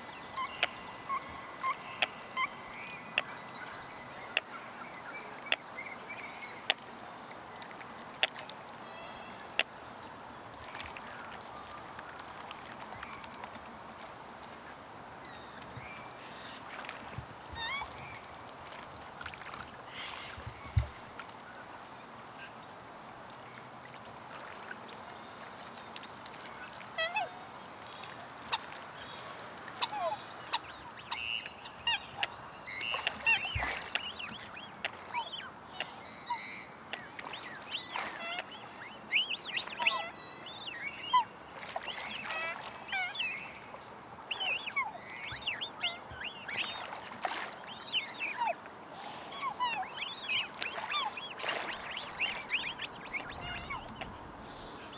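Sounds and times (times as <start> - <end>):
swans calling: 0.0 - 3.3, 26.6 - 27.4, 29.8 - 54.9.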